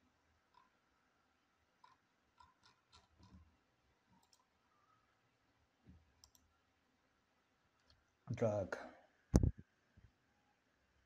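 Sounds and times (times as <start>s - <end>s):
faint computer mouse clicks: 6.2s - 6.4s.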